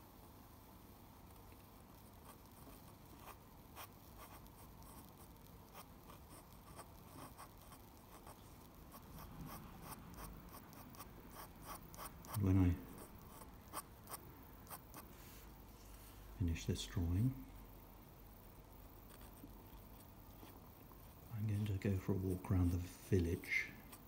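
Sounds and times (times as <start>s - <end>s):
pen nib scratching on paper: 2.2s - 15.1s.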